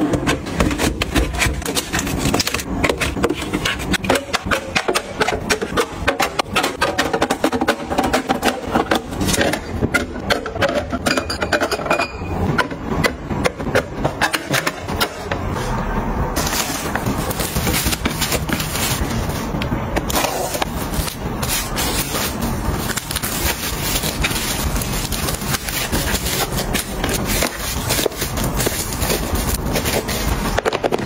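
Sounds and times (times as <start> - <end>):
cling film crinkling: 20.6 - 30.5.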